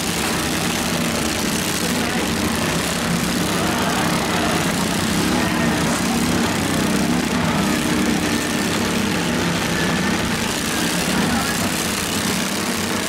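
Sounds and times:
small engines droning: 0.0 - 13.0.

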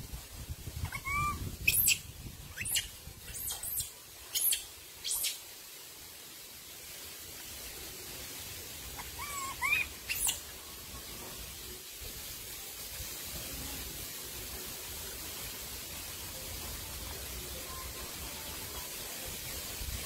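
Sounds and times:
steady hiss: 0.0 - 20.0
high animal calls: 0.8 - 2.0, 9.0 - 10.4.

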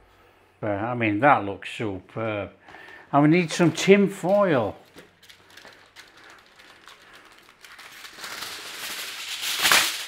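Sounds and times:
aluminium foil rustling and crinkling: 3.3 - 10.0.

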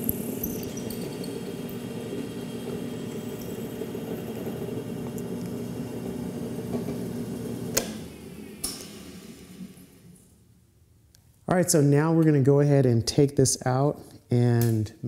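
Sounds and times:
drill press running: 0.0 - 10.0.

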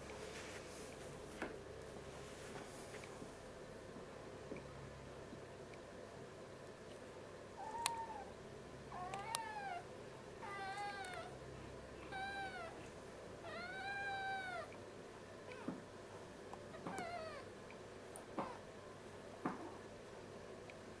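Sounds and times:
kitten meowing: 7.6 - 8.3, 8.9 - 9.8, 10.4 - 11.4, 12.1 - 12.8, 13.5 - 14.7.

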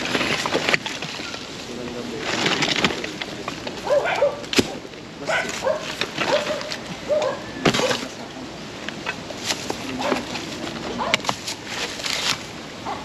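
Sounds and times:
debris rustling and knocking: 0.0 - 12.6
bird calls: 3.7 - 8.4.

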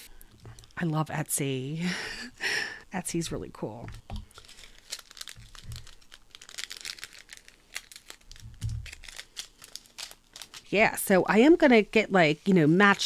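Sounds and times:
plastic packaging crinkling: 3.3 - 13.0.

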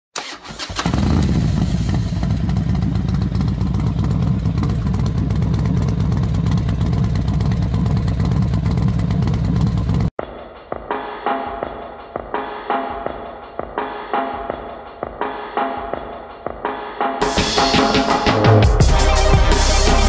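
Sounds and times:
loud low fluttering rumble: 1.1 - 10.1
drum-led music: 3.6 - 20.0.

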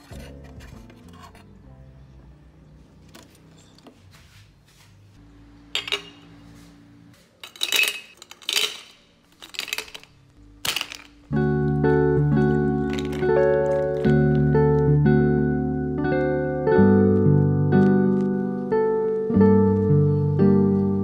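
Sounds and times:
music: 0.0 - 3.4, 11.3 - 21.0
ice cubes clinking in glass: 7.4 - 11.3, 12.8 - 14.1.

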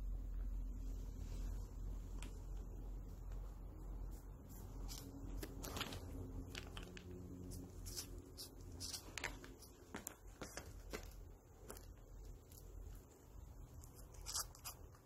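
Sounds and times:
cats scuffling on fabric: 1.0 - 12.5.

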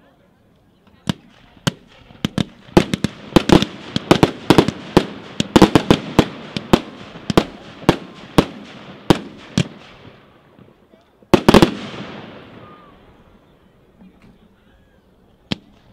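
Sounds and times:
firework cake firing sharp bangs: 1.0 - 10.2, 11.3 - 12.9.

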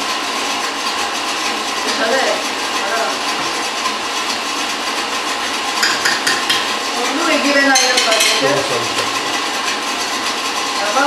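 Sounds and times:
spoon scraping a bowl: 7.6 - 9.2.

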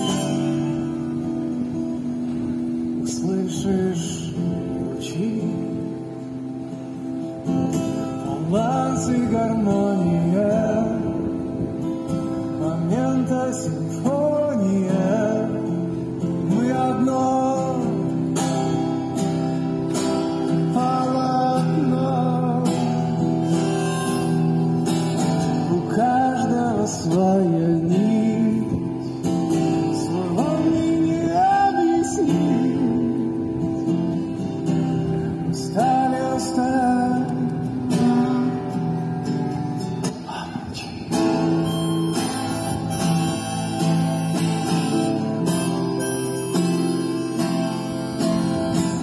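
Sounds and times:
strummed acoustic guitar: 0.0 - 49.0
sliding melody: 23.0 - 25.7, 41.2 - 49.0.

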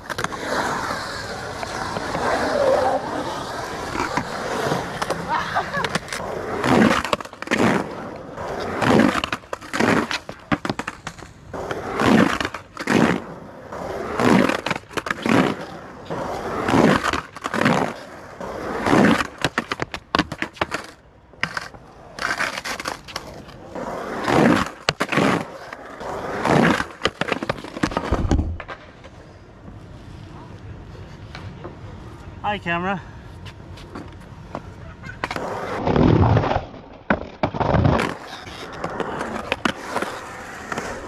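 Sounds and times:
skateboard wheels rolling on concrete: 0.0 - 41.0.

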